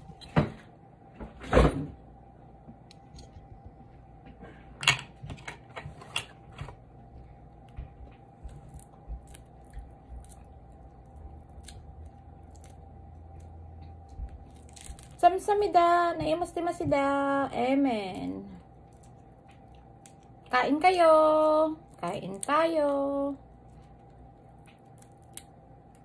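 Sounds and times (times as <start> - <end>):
faint steady hum: 0.0 - 26.0
shellfish shells cracking: 8.6 - 15.2, 23.5 - 26.0.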